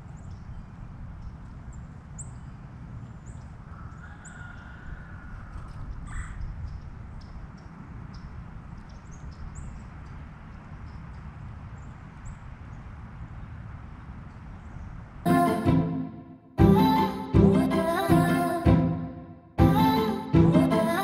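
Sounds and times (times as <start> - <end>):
small songbirds chirping: 0.0 - 15.0
low wind rumble: 0.0 - 16.5.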